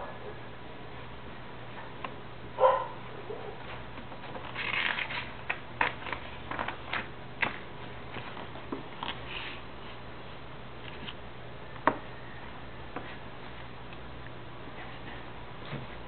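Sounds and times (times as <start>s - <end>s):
low steady hum: 0.0s - 16.0s
paper rustle: 3.7s - 10.0s.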